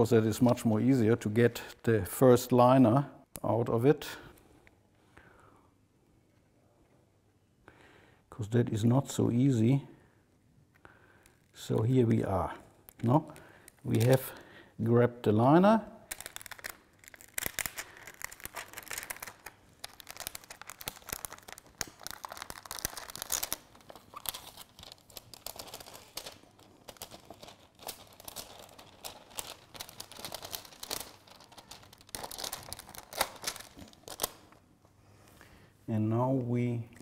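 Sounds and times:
plastic film crinkling: 11.2s - 14.5s, 16.0s - 34.7s.

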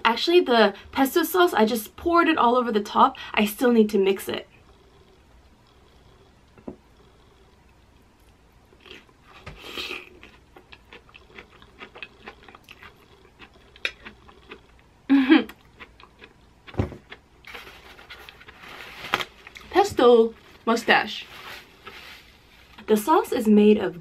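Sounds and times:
wet chewing: 4.6s - 14.9s, 15.5s - 17.6s.

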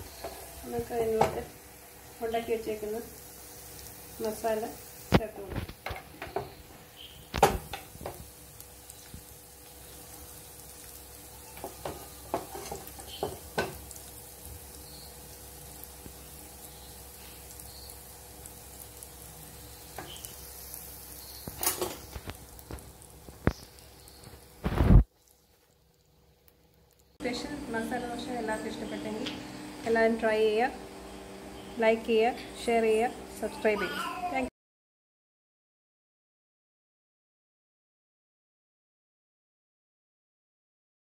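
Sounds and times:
batter sizzling on a hot pan: 0.0s - 34.5s
spatula knocking and scraping: 11.6s - 13.8s.

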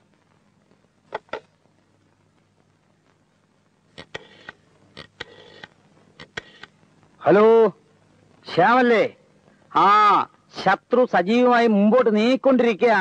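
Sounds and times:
rotary phone dialling clicks and whirs: 1.1s - 1.5s, 4.0s - 6.8s.

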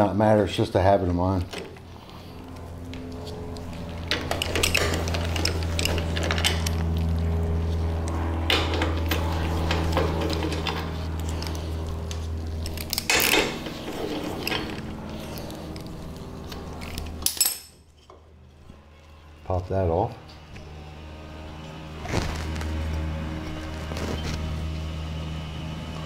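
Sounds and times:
steady low hum: 0.0s - 26.0s
metal clinking: 16.8s - 18.1s.

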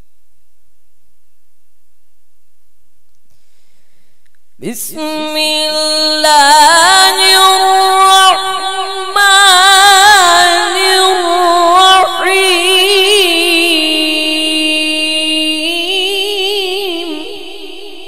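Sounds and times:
man chanting recitation: 4.6s - 18.0s.

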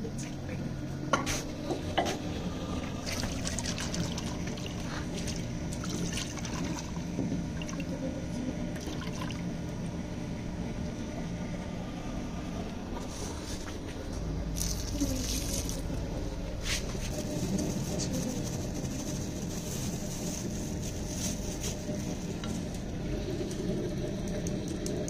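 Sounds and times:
water swishing in a bowl: 3.0s - 8.0s.

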